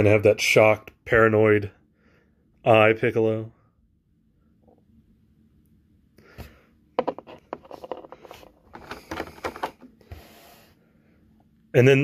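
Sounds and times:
plastic tray crinkling and clicking: 0:07.0 - 0:09.9.

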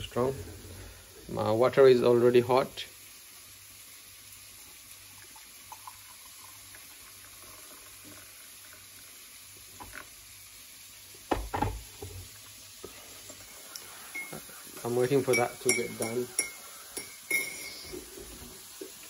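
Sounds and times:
water poured into a mug: 0:04.2 - 0:10.2
knocks: 0:11.3 - 0:12.2.

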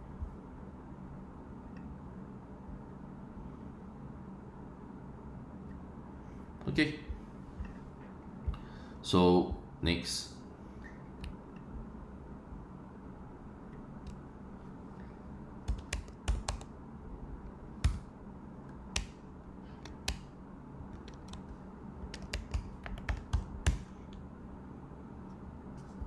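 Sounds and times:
computer keyboard typing: 0:15.6 - 0:16.7, 0:20.9 - 0:23.9.

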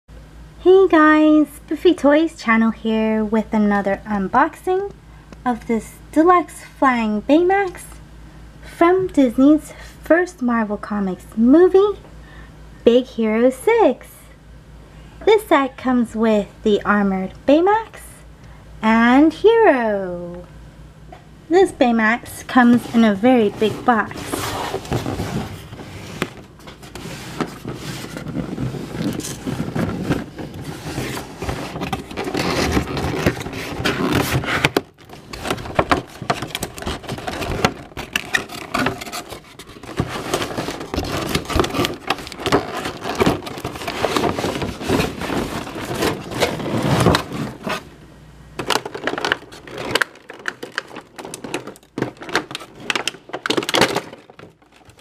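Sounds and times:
cardboard and plastic rustling: 0:22.0 - 0:47.9, 0:48.6 - 0:55.0.

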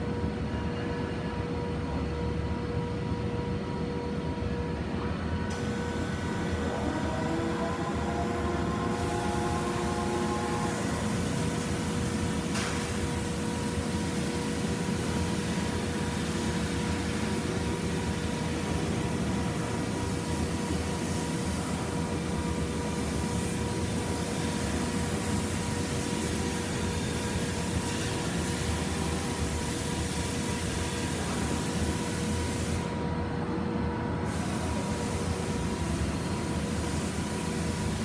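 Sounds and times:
machine whine: 0:01.8 - 0:31.5.

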